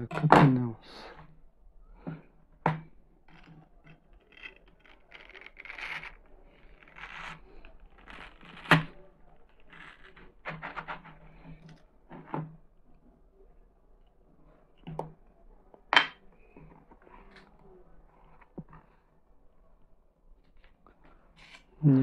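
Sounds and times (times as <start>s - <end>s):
knife cutting wet watermelon: 3.3s - 12.3s.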